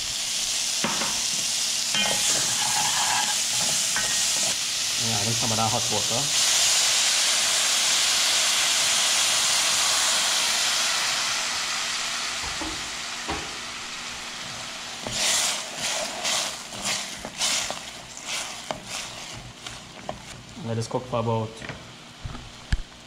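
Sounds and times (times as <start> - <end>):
vegetables sizzling in oil: 0.0 - 20.6
spoon scraping in a pot: 1.9 - 4.6, 15.0 - 20.4.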